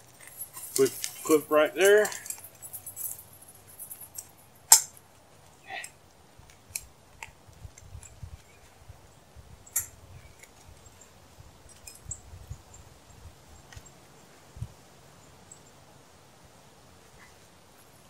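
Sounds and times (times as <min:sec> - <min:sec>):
metal chain clicks and clinks: 0:00.0 - 0:05.0.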